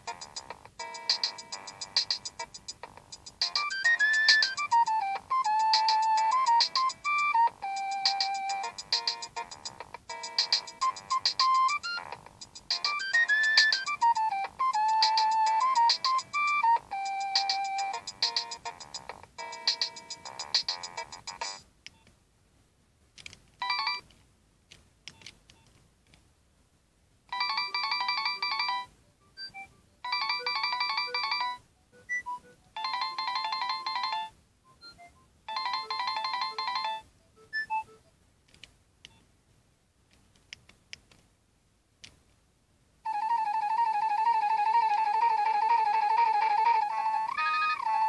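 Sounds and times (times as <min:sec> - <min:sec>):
electronic ringtone melody: 0:00.0 - 0:21.6, 0:27.4 - 0:38.1, 0:43.1 - 0:48.0
ringtone with wavering pitch: 0:00.0 - 0:21.6, 0:27.4 - 0:38.1, 0:43.1 - 0:48.0.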